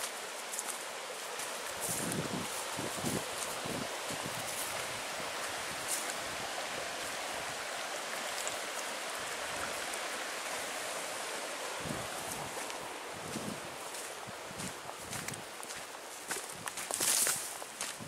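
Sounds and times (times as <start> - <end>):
creek running over rocks: 0.0 - 18.0.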